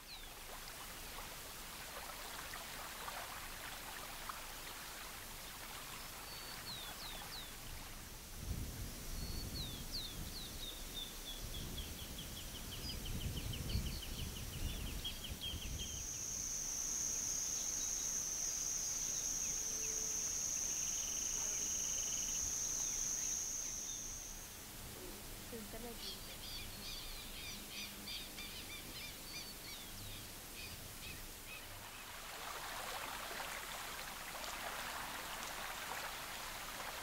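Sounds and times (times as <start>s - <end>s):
high insect buzz: 15.6s - 26.4s
small birds chirping: 25.5s - 31.3s.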